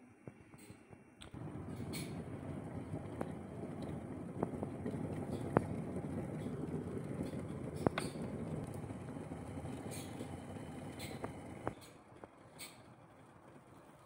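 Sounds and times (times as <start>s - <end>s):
kettle sharp clicks: 1.2s - 11.8s
kettle boiling rumble: 1.2s - 14.0s.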